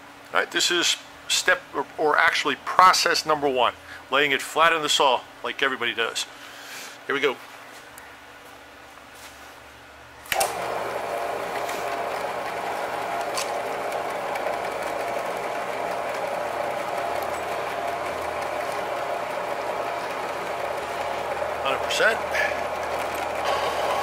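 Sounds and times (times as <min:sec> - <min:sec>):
bandsaw running: 0:10.3 - 0:24.0
coolant flowing: 0:10.3 - 0:24.0.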